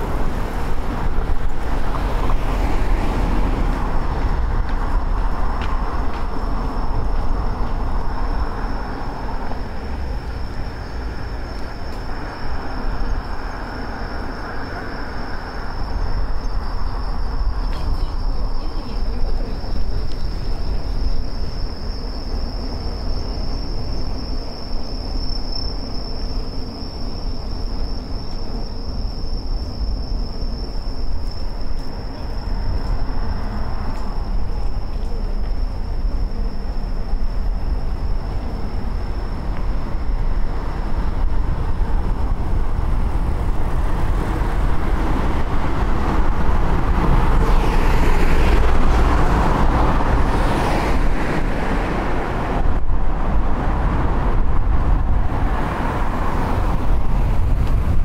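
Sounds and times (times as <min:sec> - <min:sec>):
insects trilling: 0:00.0 - 0:52.1
wind and bicycle tyre rumble: 0:00.0 - 0:58.0.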